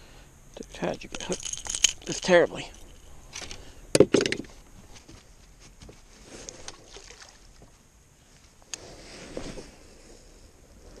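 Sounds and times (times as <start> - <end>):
faint knocks and rustling: 3.4 - 6.8.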